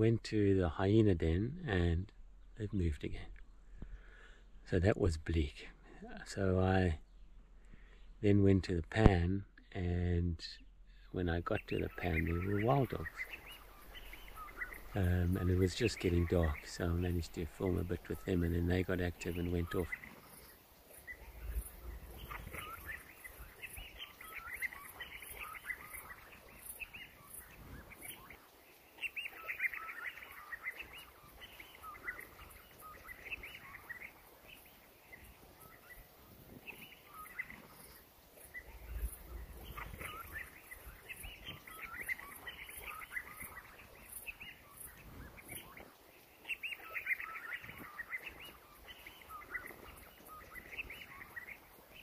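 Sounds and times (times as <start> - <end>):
wild dogs twittering: 11.5 - 52.0.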